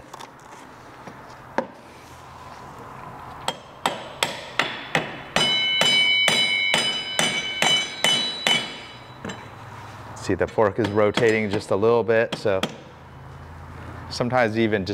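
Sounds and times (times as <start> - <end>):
mallet tapping metal axle: 3.5 - 9.6, 10.5 - 11.7
high metallic ring: 4.6 - 9.9.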